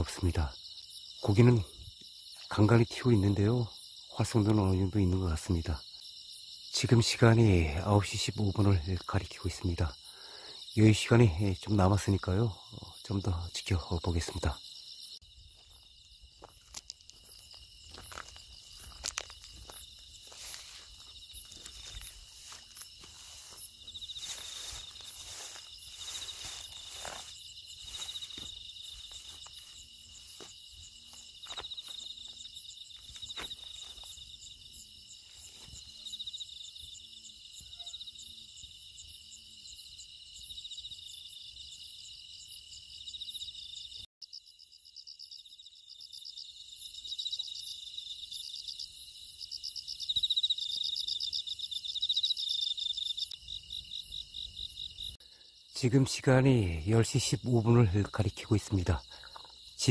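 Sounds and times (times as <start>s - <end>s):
crickets and insects trilling: 0.0s - 59.9s
footsteps rustling through dry grass: 15.4s - 36.5s.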